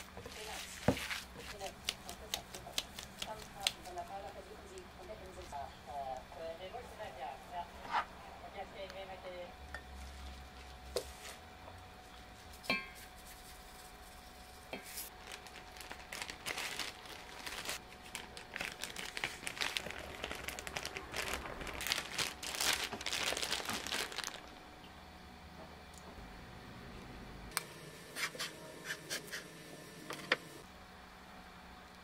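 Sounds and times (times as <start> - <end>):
plastic bag crinkling: 15.1 - 24.6.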